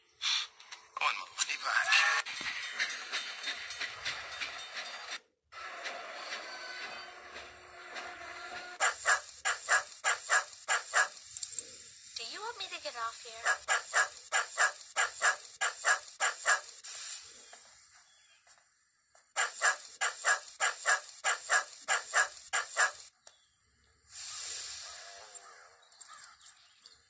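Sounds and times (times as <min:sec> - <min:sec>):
dog barking rapidly: 0:08.8 - 0:11.2, 0:13.3 - 0:16.7, 0:19.4 - 0:23.1
hissing noise: 0:08.8 - 0:17.9, 0:24.1 - 0:25.3.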